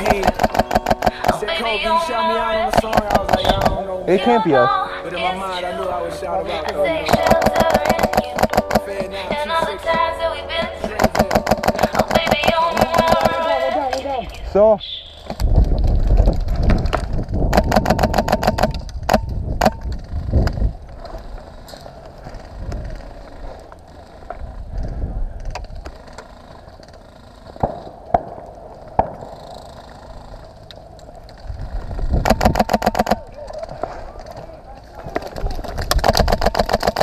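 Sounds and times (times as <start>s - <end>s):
airsoft gun full-auto bursts: 0.0s - 2.0s, 2.6s - 3.8s, 7.0s - 9.0s, 10.8s - 13.8s, 17.5s - 19.8s, 32.2s - 33.2s, 35.9s - 37.0s.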